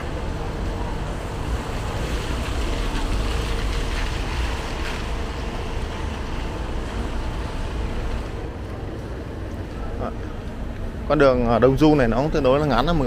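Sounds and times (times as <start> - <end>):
tyres hissing on wet road: 0.0 - 8.6
cars driving past: 0.0 - 13.0
steady low rumble: 0.0 - 13.0.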